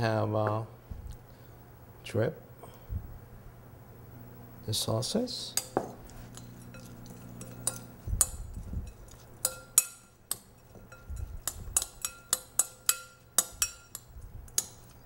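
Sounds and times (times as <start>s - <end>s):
fork clinking on glass bowl: 6.4s - 15.0s.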